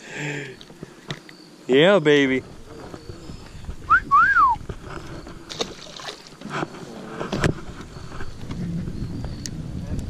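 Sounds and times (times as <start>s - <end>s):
whistled notes: 3.9s - 4.6s.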